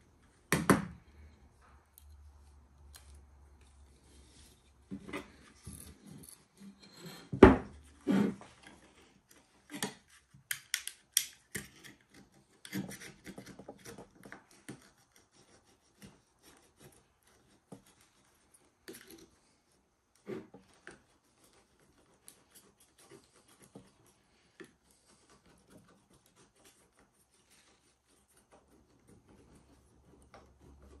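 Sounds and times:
scraping and clicking of hand tool: 0:04.6 - 0:18.1.

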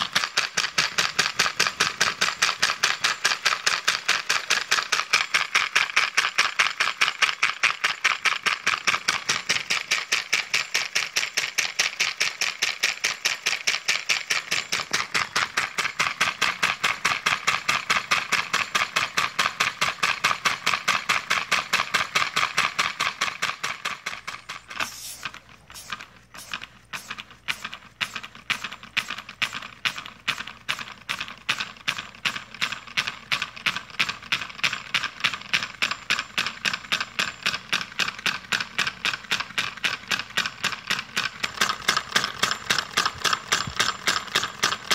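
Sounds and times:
compressed-air engine puffing: 0:23.8 - 0:30.1.

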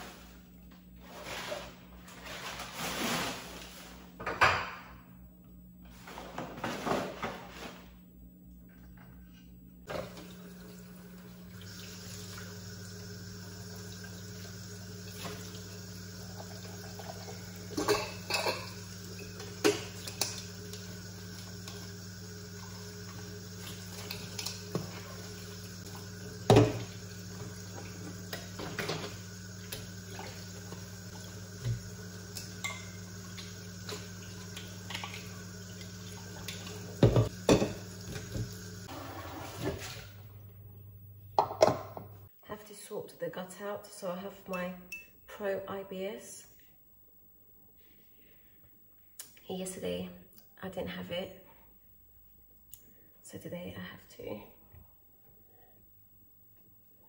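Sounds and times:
tap running into sink: 0:26.4 - 0:30.8, 0:31.6 - 0:38.7.

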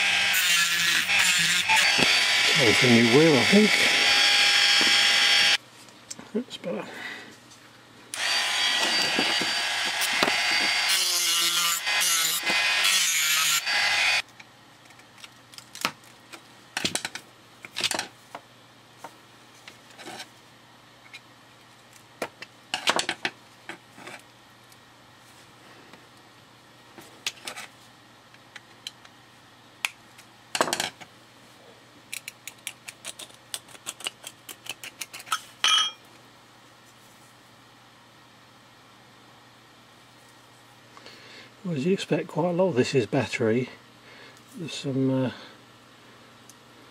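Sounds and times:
rotary tool grinding metal: 0:00.0 - 0:05.6, 0:08.2 - 0:14.2.

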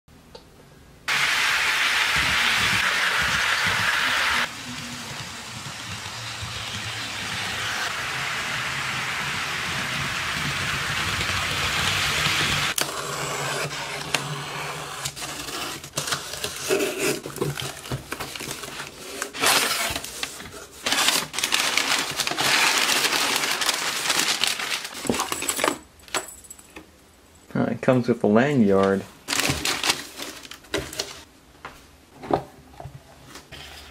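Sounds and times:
model train whirring: 0:02.6 - 0:12.8
packing paper crinkling: 0:15.9 - 0:25.7, 0:28.9 - 0:31.3.

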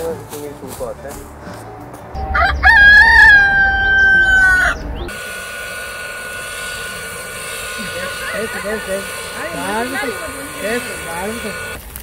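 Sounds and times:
rooster crowing: 0:02.2 - 0:09.5
machine hum: 0:02.2 - 0:11.8.

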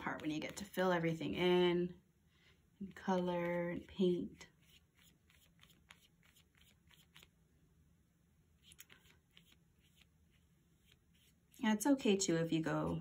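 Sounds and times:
paintbrush scratching on paper: 0:02.8 - 0:07.3, 0:08.6 - 0:13.0.

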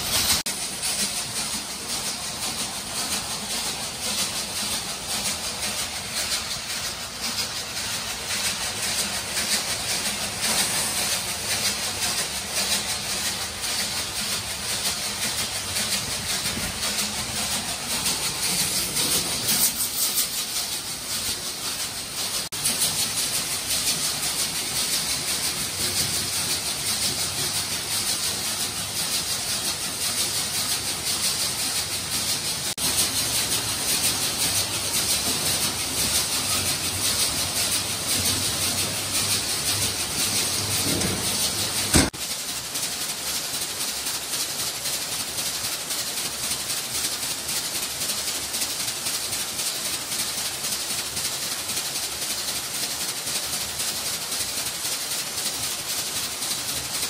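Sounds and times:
factory machinery hissing: 0:00.0 - 0:57.0.

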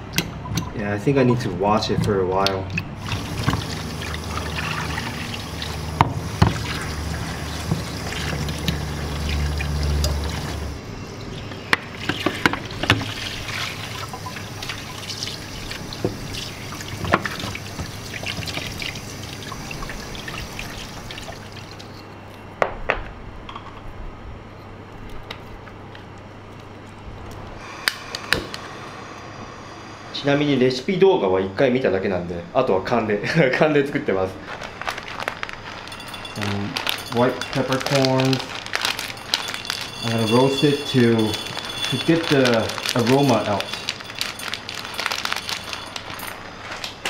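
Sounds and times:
tap water running into sink: 0:03.0 - 0:10.7, 0:12.0 - 0:21.9.

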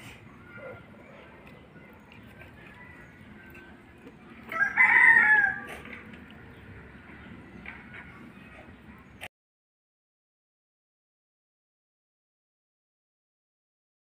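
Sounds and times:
rooster crowing: 0:04.5 - 0:05.9.

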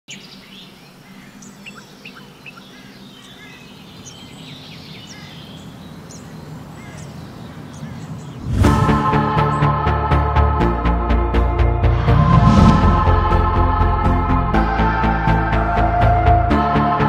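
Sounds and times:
small birds chirping: 0:00.1 - 0:08.6.

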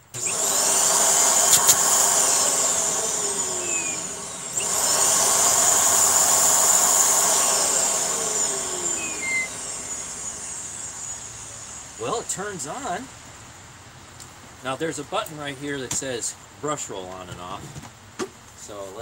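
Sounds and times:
upright vacuum cleaner running: 0:00.0 - 0:12.2.

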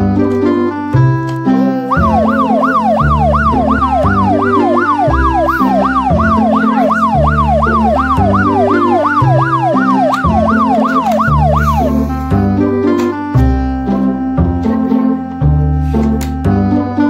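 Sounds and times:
background music with bass line: 0:00.0 - 0:17.0
yelp siren sweeping: 0:01.8 - 0:12.2.

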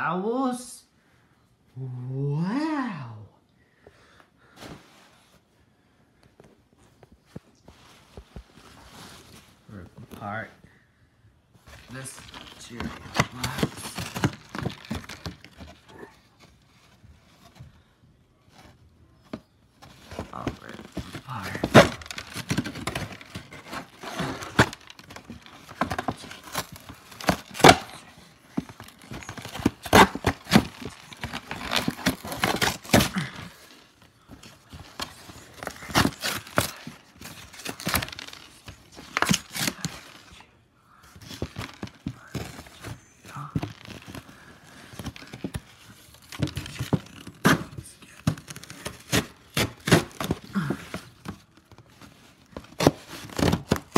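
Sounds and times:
cardboard tearing and crumpling: 0:11.8 - 0:17.4, 0:19.8 - 0:40.4, 0:41.2 - 0:53.9.

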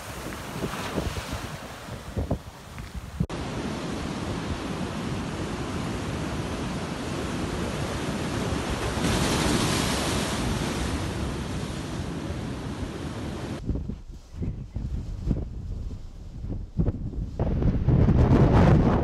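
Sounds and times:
waves crashing on rocks: 0:00.0 - 0:13.6
wind: 0:00.0 - 0:19.0.

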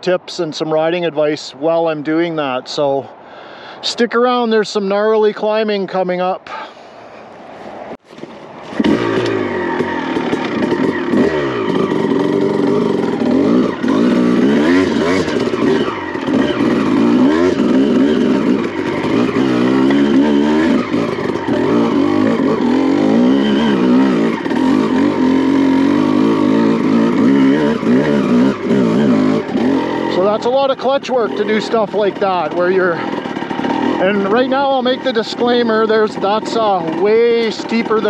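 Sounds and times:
dirt bike engine revving: 0:08.1 - 0:38.0.

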